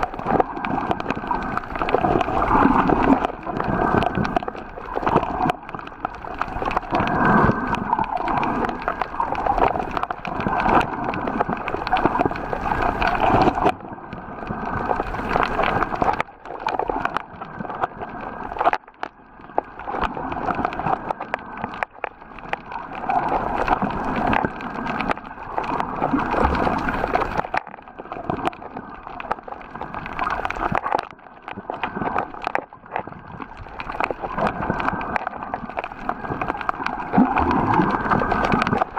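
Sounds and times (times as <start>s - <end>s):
water sloshing and gurgling: 0.0s - 38.9s
small clicks and knocks: 18.5s - 38.9s.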